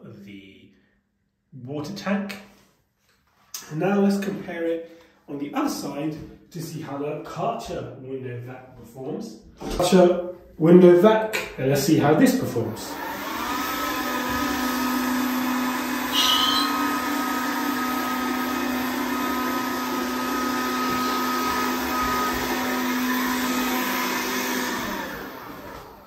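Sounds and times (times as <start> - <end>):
window vacuum motor whine: 12.8 - 26.0
high squeak on glass: 16.1 - 16.9.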